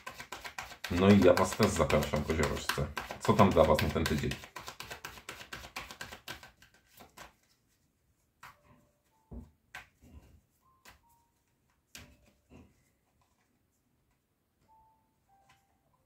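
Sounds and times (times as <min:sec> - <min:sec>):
cards tapping on a table: 0:00.0 - 0:07.3.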